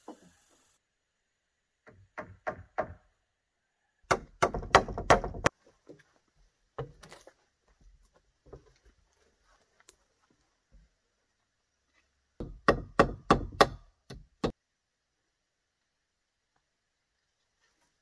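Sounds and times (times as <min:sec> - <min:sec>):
hard wooden knocks: 0:04.1 - 0:05.5.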